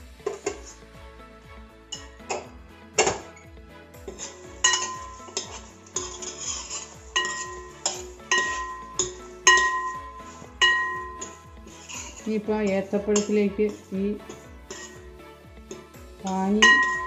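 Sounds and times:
background music: 0.0 - 17.0
metal ladle clinking in a pot: 4.1 - 12.2, 14.3 - 15.1, 15.7 - 17.0.

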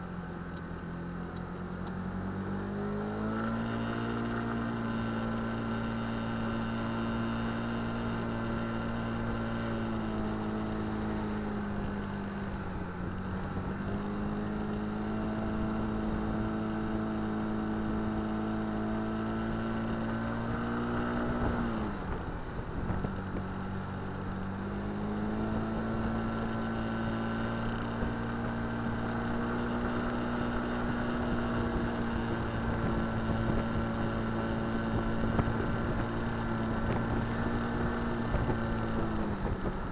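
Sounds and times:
scooter engine droning: 0.0 - 39.9.

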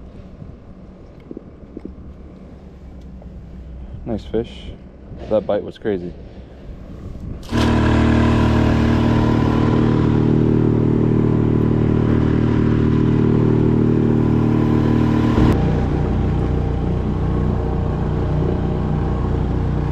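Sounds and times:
outboard motor running: 7.4 - 19.9.

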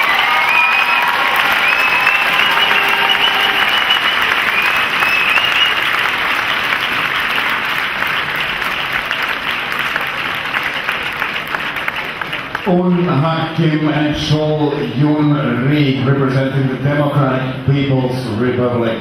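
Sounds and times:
large audience clapping: 0.0 - 13.1.

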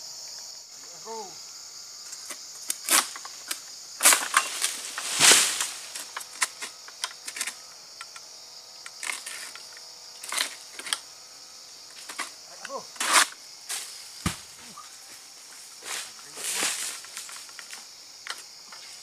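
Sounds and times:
insects droning: 0.0 - 19.0
sickle cracking palm frond: 2.2 - 7.6, 11.9 - 14.9, 15.8 - 18.4.

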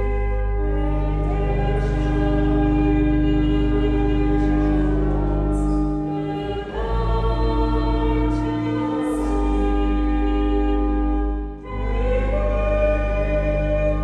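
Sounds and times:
congregation singing a hymn: 0.0 - 14.0.

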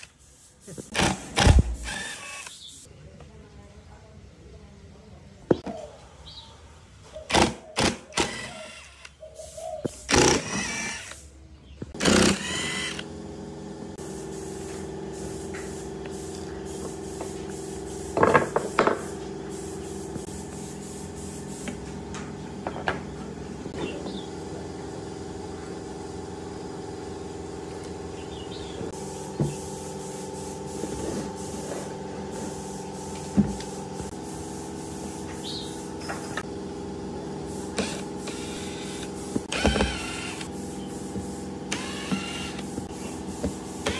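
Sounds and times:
electric drill running: 0.9 - 2.7, 8.1 - 9.1, 10.0 - 11.3, 12.0 - 13.2, 37.5 - 43.9.

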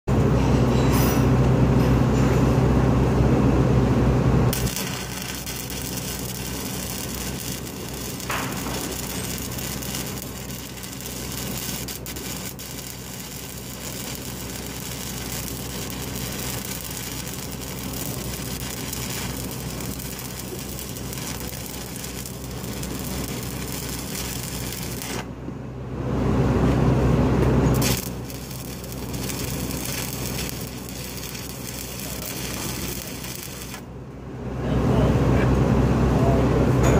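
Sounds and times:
loud low hum: 0.1 - 36.9
welding arc hissing: 4.5 - 25.3, 27.7 - 33.9.

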